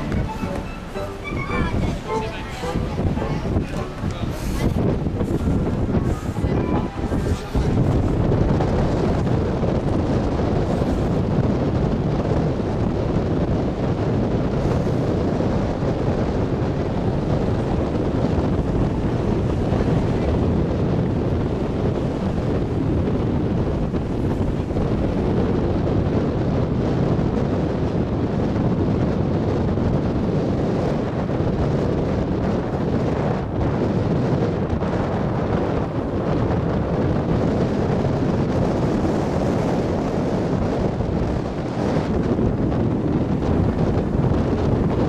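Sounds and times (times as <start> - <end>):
sea wash: 0.0 - 9.8
wind buffeting microphone: 0.0 - 45.0.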